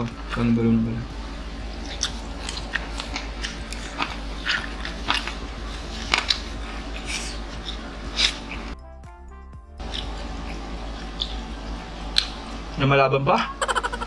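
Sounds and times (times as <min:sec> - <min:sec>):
steady low hum: 0:00.0 - 0:14.0
chewing mouth sounds: 0:01.8 - 0:08.6.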